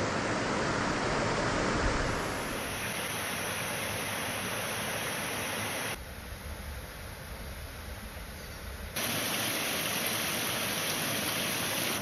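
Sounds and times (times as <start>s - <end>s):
creek water running over rocks: 9.0s - 12.0s.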